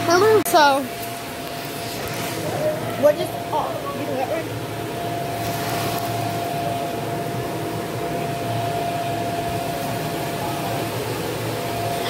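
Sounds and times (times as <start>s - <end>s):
electric air blower whining: 0.0s - 12.0s.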